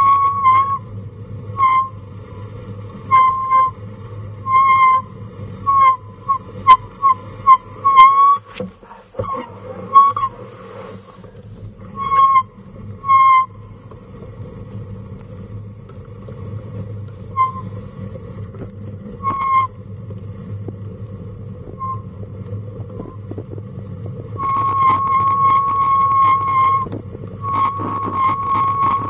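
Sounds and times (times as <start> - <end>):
high-pitched wheel squeals: 0.0 - 8.6, 9.2 - 10.5, 11.8 - 13.8, 17.2 - 17.9, 19.1 - 20.0, 21.6 - 22.2, 22.9 - 23.4, 24.3 - 29.0
stroller wheels rolling on pavement: 13.5 - 29.0.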